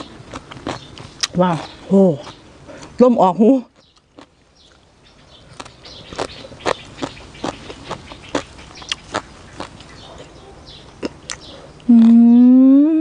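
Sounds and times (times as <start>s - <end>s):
wet crunchy chewing: 0.0s - 2.9s, 3.8s - 4.8s, 5.5s - 10.4s, 11.0s - 12.2s.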